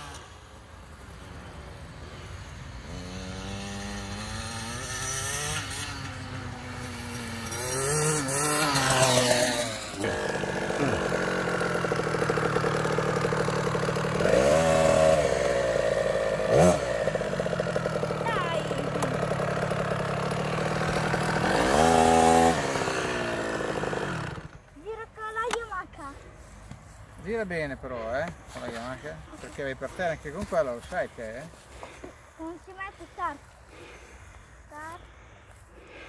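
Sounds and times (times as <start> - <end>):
dirt bike engine revving: 2.8 - 24.8.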